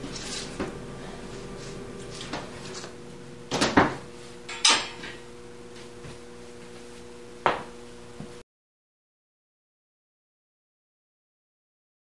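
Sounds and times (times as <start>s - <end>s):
steady hum: 0.0s - 8.4s.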